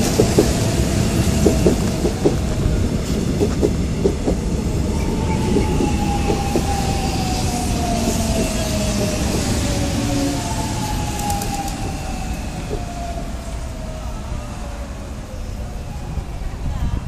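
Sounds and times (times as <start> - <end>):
train motor whine: 0.0 - 15.6
train wheels rumbling on track: 0.0 - 17.0.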